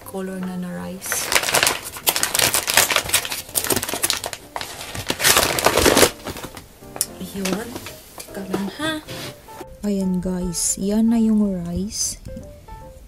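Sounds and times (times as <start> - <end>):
paper sack crinkling: 1.0 - 8.0.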